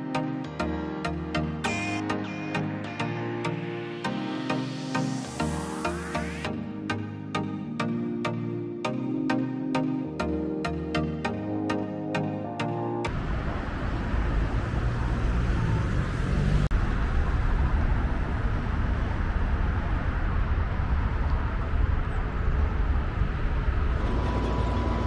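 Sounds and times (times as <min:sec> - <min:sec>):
vehicle engine and tyre rumble: 0:13.1 - 0:25.0.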